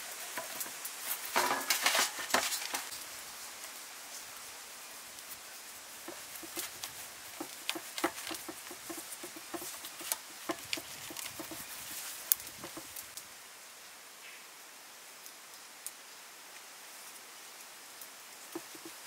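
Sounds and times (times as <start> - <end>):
salt sprinkling on fish: 5.2 - 13.2.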